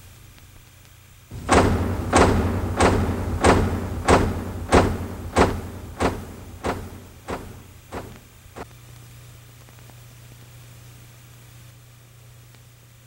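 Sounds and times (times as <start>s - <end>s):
footsteps on hard floor: 1.3s - 8.2s
low hum: 1.3s - 8.3s.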